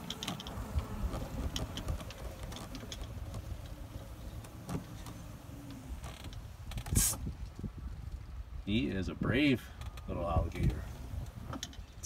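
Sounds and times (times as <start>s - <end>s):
golf cart rumbling over grass: 0.0s - 12.0s.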